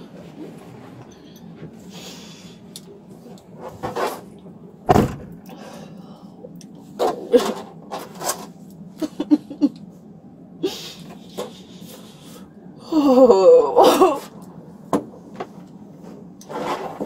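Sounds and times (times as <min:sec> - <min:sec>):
car low steady hum: 0:00.0 - 0:16.5
heavy thump: 0:04.9 - 0:05.4.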